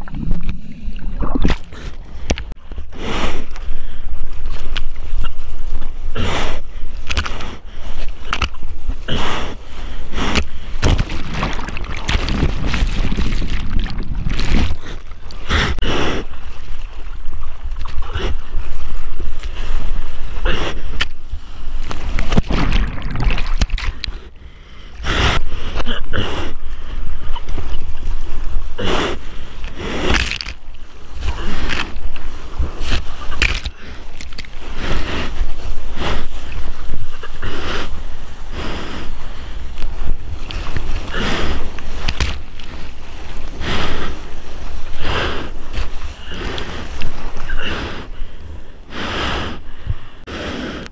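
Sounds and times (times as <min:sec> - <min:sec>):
water splashing: 0:00.0 - 0:02.6, 0:09.6 - 0:24.4
low rumble of water: 0:00.0 - 0:07.0, 0:07.6 - 0:25.6
wind buffeting microphone: 0:10.8 - 0:15.1.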